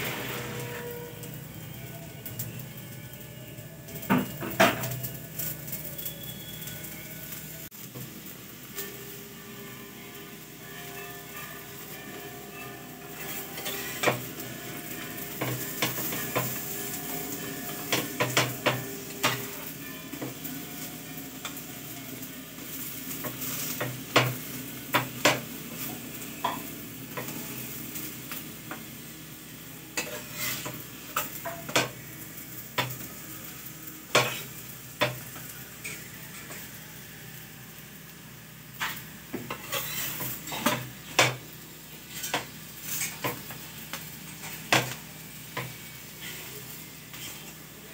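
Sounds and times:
flatbread sizzling in oil: 0.0s - 2.7s, 3.8s - 47.9s
spatula scraping pan: 13.1s - 20.4s, 30.0s - 32.0s, 34.1s - 36.6s, 38.8s - 41.4s, 42.0s - 43.7s, 44.3s - 47.7s.

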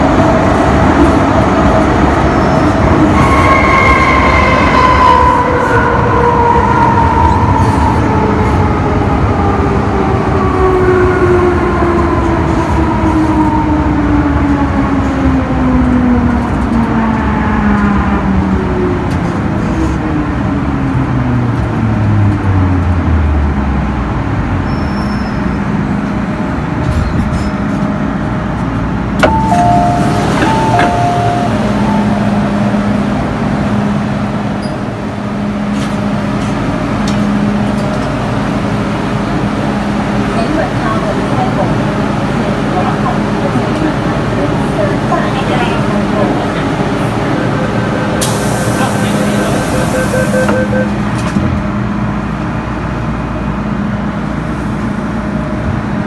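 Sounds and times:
two-tone door chime: 29.2s - 32.2s, 49.9s - 50.9s
train motors whining while braking: 48.2s - 51.4s.

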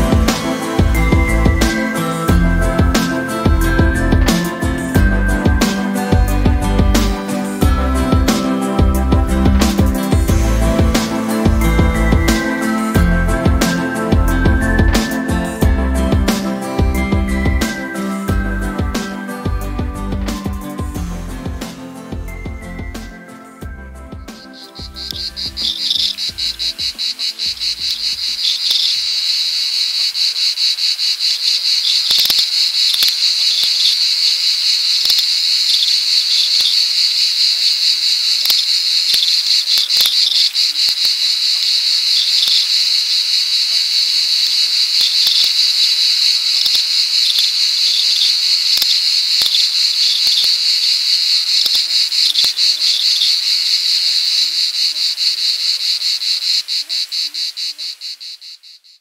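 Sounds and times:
insect chorus: 0.0s - 6.2s, 7.0s - 19.4s, 20.2s - 59.0s
background music: 0.0s - 28.9s.

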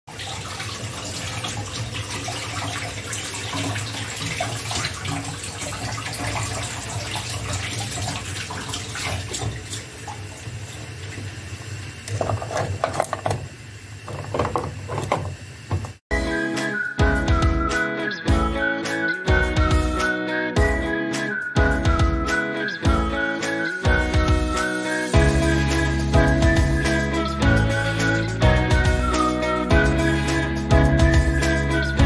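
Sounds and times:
water bubbling in a pot: 0.1s - 16.0s.

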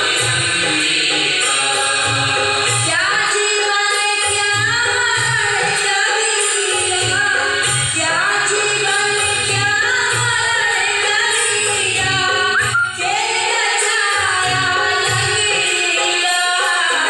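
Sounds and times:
backing track with drum beat: 0.0s - 17.0s
woman singing: 0.0s - 17.0s.

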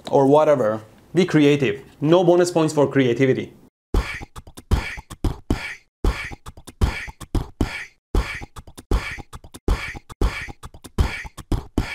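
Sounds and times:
beatbox-like percussive beat: 4.0s - 11.9s.

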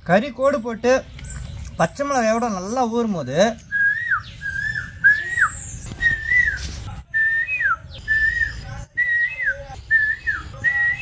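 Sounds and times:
whistling sliding down: 3.7s - 11.0s.

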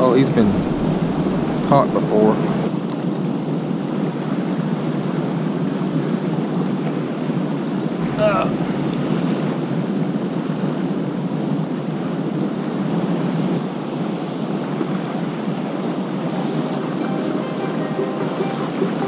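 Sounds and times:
river water rushing: 0.2s - 2.8s, 7.0s - 19.0s.

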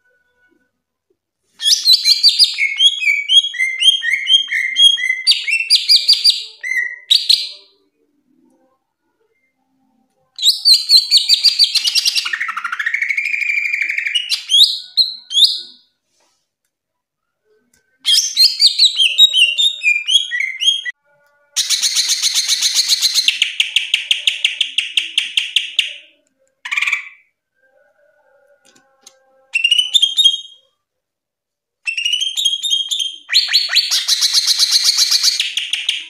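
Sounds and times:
bird singing chirps and whistles: 1.6s - 7.7s, 10.4s - 15.8s, 18.1s - 21.0s, 21.6s - 26.0s, 29.6s - 30.6s, 31.9s - 36.0s.

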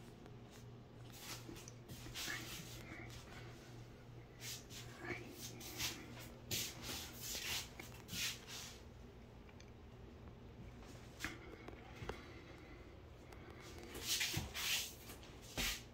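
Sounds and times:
steady low hum: 0.0s - 15.9s
rubbing and rustling scrapes: 0.5s - 3.3s, 4.4s - 8.8s, 13.9s - 15.9s.

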